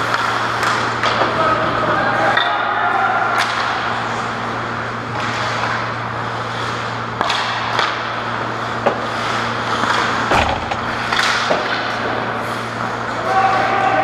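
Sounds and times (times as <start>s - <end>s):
hockey sticks and puck clacking: 8.8s - 12.7s
steady low hum: 9.6s - 12.4s.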